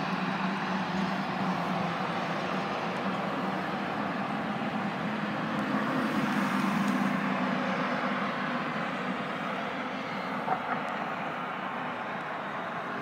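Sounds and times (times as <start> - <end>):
traffic rumble: 0.0 - 13.0
vehicle engine passing by: 0.8 - 9.2.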